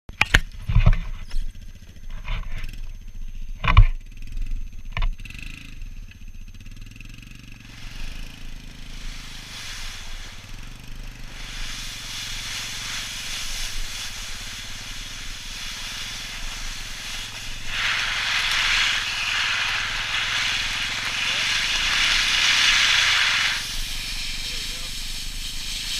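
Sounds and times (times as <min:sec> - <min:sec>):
vehicle engine hum: 0:00.1 - 0:25.9
sled sliding over snow: 0:07.6 - 0:25.9
wind rushing: 0:07.8 - 0:24.1.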